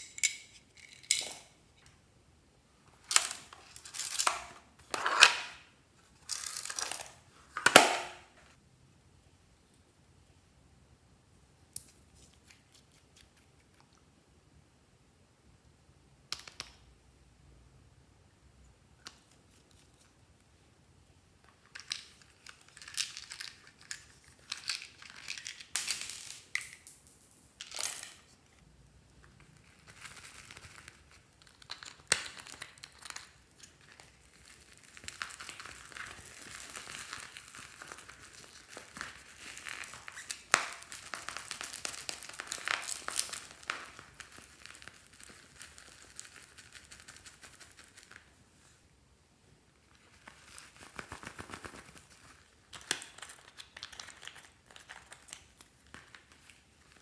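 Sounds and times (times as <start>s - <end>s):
sprinkles tipped out crackling: 29.7s - 48.2s.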